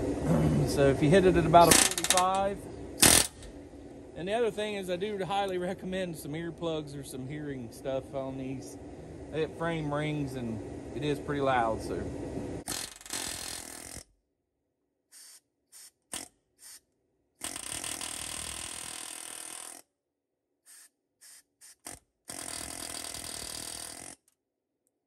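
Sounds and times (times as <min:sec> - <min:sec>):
pneumatic air hammer on rivet: 0:01.6 - 0:02.4, 0:03.0 - 0:03.5, 0:12.7 - 0:14.1, 0:15.1 - 0:19.9, 0:20.7 - 0:24.3.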